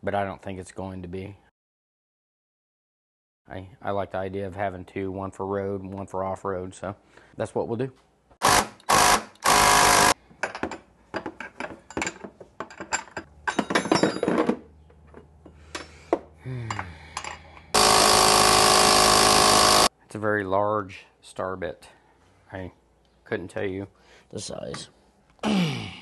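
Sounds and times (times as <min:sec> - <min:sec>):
tools and hardware clattering: 0:10.3 - 0:16.0.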